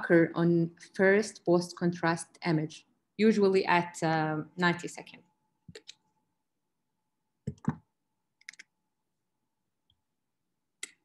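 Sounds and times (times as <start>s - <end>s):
computer clicking: 8.4s - 8.7s.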